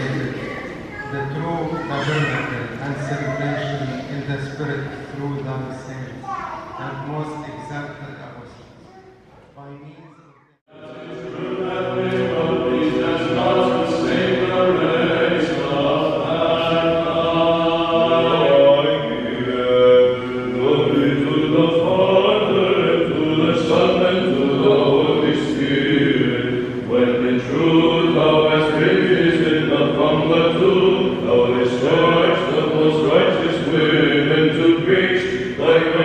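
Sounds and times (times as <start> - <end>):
group of voices chanting: 10.7 - 36.0.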